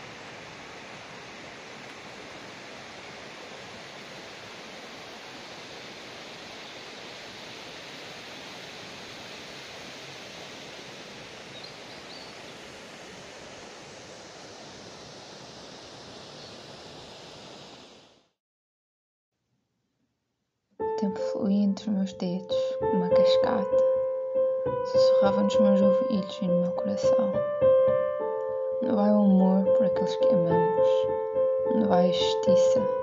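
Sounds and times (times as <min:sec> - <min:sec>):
rushing forest ambience: 0:00.0 - 0:18.3.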